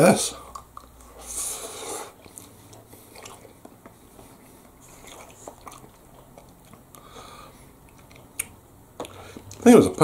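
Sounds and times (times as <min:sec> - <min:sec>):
man chewing noodles: 0:00.4 - 0:09.7
soft mouth clicks: 0:07.8 - 0:09.6.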